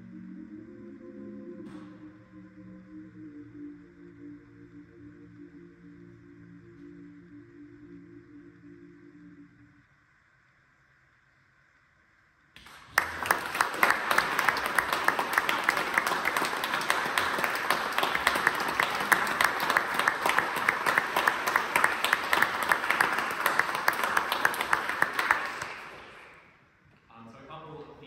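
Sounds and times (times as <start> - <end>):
audience applauding: 12.6 - 26.6.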